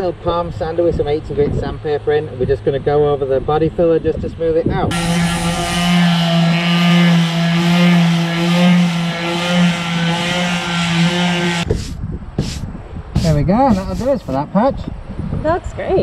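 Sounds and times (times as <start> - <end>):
electric sander running: 4.9 - 12.6, 13.2 - 14.4.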